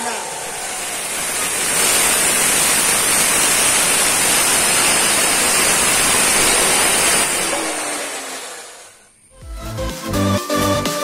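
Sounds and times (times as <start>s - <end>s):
cut-off saw grinding steel: 0.0s - 9.2s.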